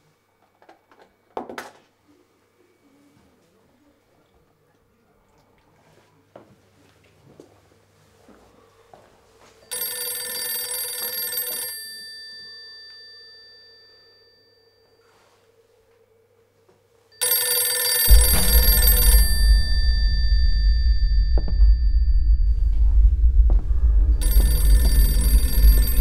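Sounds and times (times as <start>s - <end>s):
telephone bell ringing: 9.6s - 15.4s, 17.1s - 21.6s, 24.2s - 26.0s
deep low rumble: 18.1s - 26.0s.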